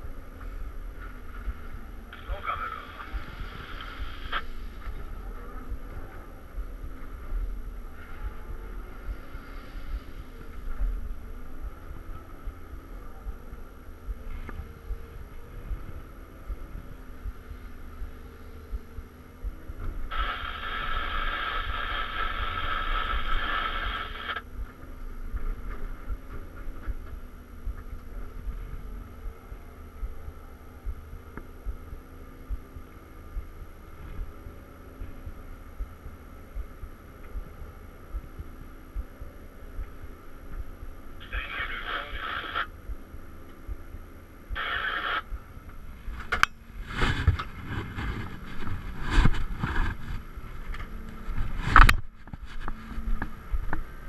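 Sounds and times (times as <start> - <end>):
diesel engine rumbling: 0.0 - 54.0
hydraulic hiss and whine: 2.2 - 4.9, 20.0 - 24.4, 41.2 - 42.7, 44.5 - 46.4.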